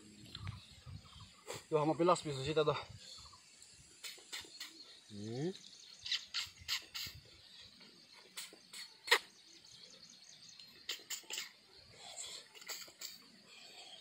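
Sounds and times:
birds: 0.0s - 14.0s
insects hissing: 0.0s - 14.0s
wet mouth clicks and lip smacks: 8.4s - 9.3s.

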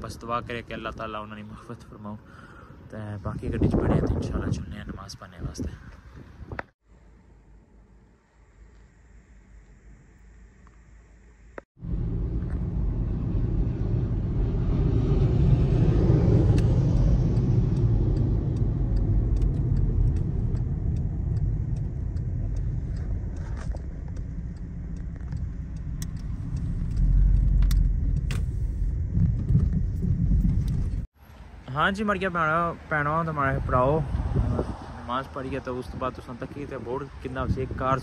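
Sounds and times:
car cabin road rumble: 11.8s - 34.8s.

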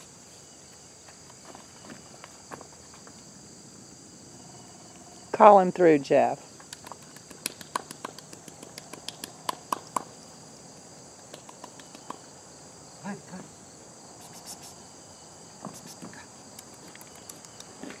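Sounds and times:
insects droning: 0.0s - 18.0s
sharp clicks: 6.6s - 10.1s, 11.3s - 12.2s, 15.8s - 17.8s.

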